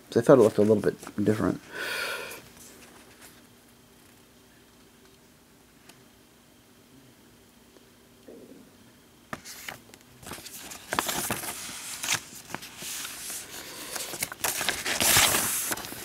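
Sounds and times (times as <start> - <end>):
paper rustling and crackling: 9.3 - 16.0.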